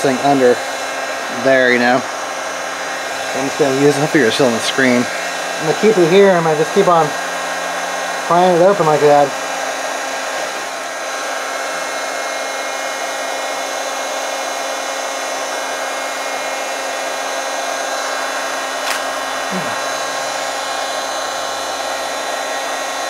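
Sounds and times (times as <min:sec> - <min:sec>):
heat gun blowing: 0:00.0 - 0:23.0
sharp click: 0:18.8 - 0:19.2.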